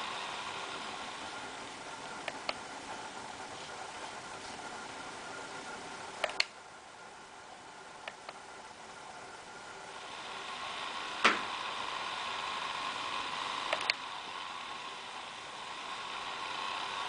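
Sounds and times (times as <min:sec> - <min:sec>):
laptop fan whirring: 0:00.0 - 0:17.0
sharp clicks: 0:06.2 - 0:06.6, 0:08.0 - 0:08.4, 0:13.7 - 0:14.0.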